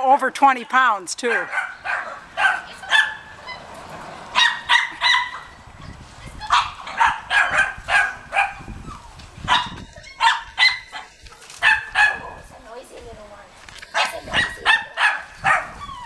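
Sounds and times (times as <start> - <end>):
dog barking: 1.3 - 3.6, 4.3 - 5.6, 6.5 - 8.7, 9.5 - 12.4, 13.9 - 15.8.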